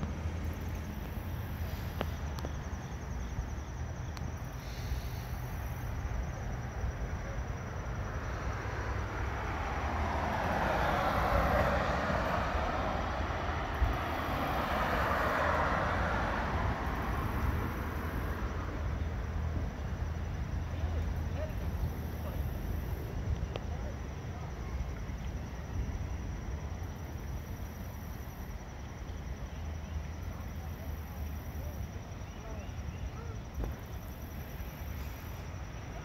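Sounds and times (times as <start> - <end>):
low rumble of traffic: 0.0 - 36.0
vehicle passing: 4.3 - 23.3.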